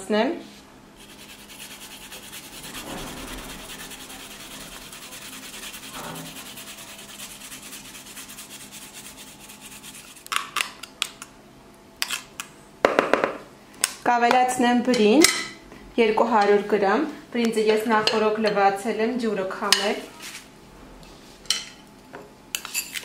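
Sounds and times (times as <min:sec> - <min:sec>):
garlic grating on metal grater: 0:01.0 - 0:10.3
spoon scraping metal grater: 0:01.0 - 0:10.3.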